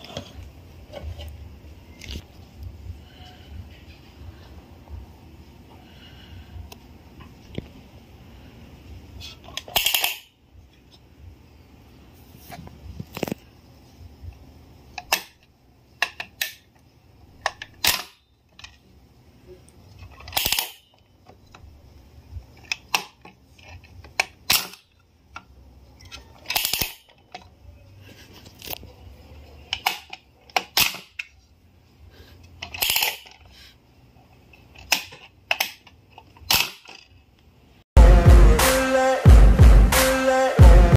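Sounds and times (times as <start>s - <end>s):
music: 38.0s - 40.9s.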